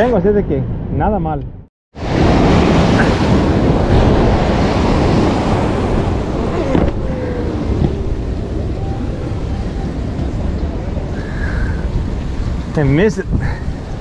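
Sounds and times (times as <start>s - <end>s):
wind noise on microphone: 0.8s - 14.0s
surf breaking against boulders: 2.0s - 8.9s.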